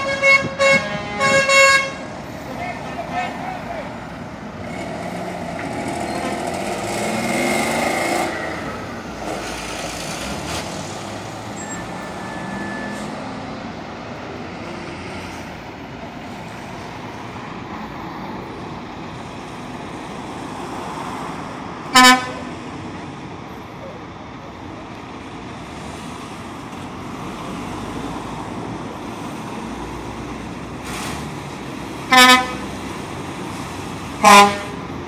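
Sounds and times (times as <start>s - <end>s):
truck horn blast: 0.0s - 2.1s, 21.9s - 22.5s, 32.1s - 32.8s, 34.2s - 34.9s
lorry diesel engines passing: 0.0s - 35.0s
traffic drone: 0.0s - 35.0s
truck accelerating: 0.0s - 35.0s.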